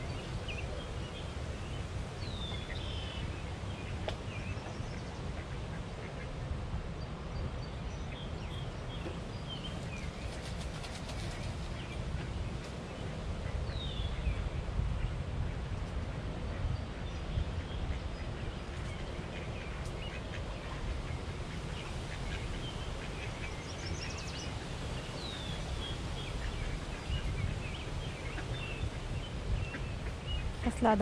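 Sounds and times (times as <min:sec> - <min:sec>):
small birds calling: 0:16.7 - 0:31.0
ducks quacking: 0:26.2 - 0:31.0.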